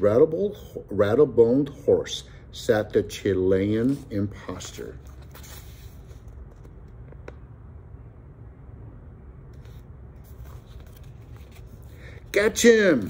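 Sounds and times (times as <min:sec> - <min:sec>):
low steady hum: 0:00.0 - 0:13.0
book handling noise: 0:03.8 - 0:07.5, 0:09.5 - 0:12.3.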